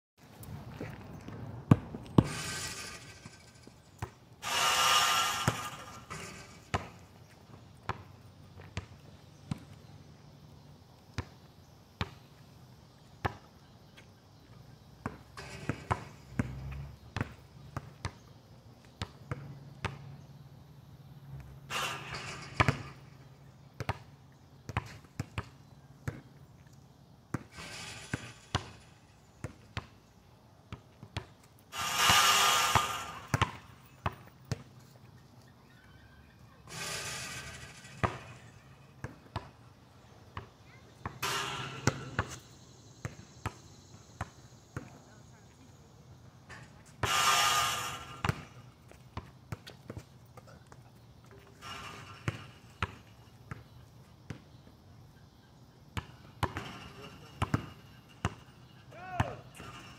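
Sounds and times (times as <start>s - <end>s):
basketball bouncing on asphalt: 0.6s - 20.4s, 21.4s - 35.8s, 36.7s - 45.6s, 46.4s - 54.8s, 56.0s - 59.9s
noisy bursts: 4.4s - 6.7s, 31.7s - 33.8s, 47.0s - 48.6s.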